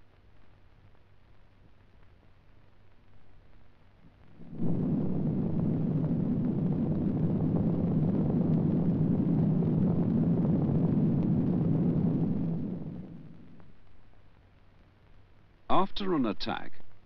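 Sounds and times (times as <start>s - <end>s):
explosion low rumble: 4.3s - 14.2s.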